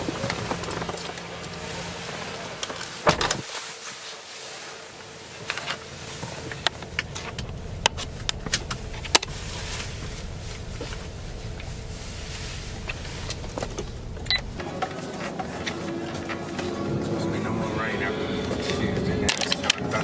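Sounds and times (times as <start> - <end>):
car door shutting: 3.0 - 3.4, 7.2 - 14.8.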